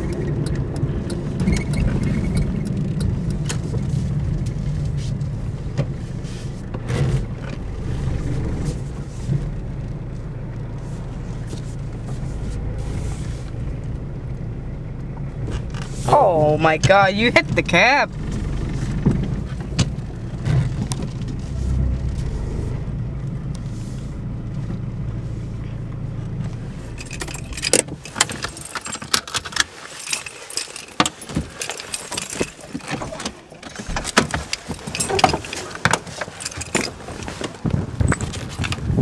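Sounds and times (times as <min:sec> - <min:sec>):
car engine running at low revs: 0:00.0 - 0:39.0
car keys jingling: 0:26.7 - 0:39.0.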